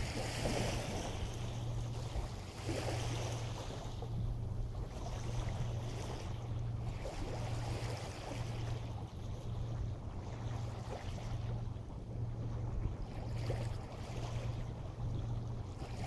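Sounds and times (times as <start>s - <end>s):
waves washing on shore: 0.0s - 8.8s
steady low hum: 0.0s - 16.0s
wind: 0.0s - 16.0s.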